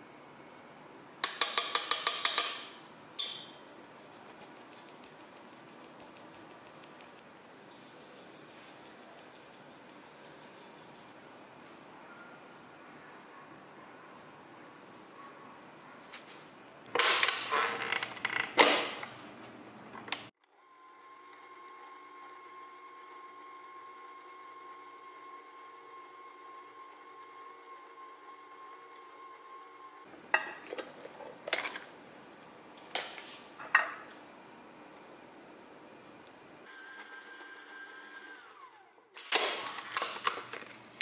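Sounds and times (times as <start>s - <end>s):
sharp clicks and knocks: 1.2s - 3.6s.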